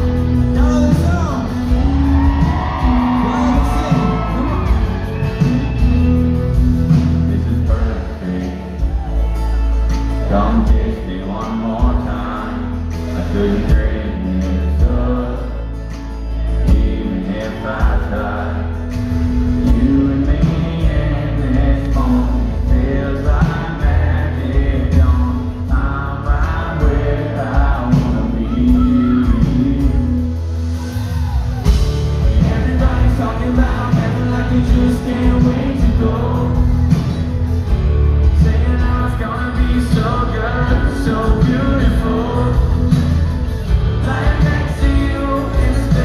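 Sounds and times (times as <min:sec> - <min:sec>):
live country band playing: 0:00.0 - 0:46.0
man singing lead vocal: 0:00.0 - 0:46.0.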